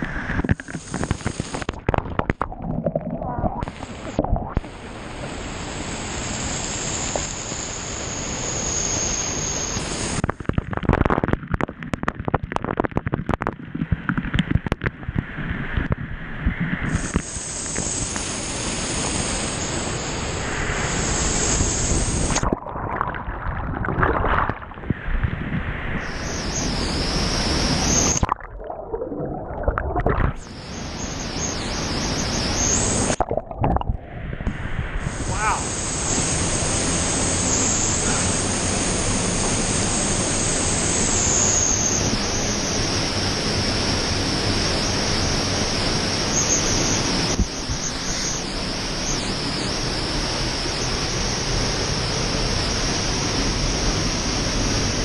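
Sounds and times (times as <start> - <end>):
water splashing on camera: 0.0 - 5.0, 10.1 - 18.3, 21.8 - 26.1, 27.7 - 30.6, 32.6 - 36.6
waterfall rushing into pool: 0.0 - 14.8, 16.8 - 25.3, 25.9 - 55.0.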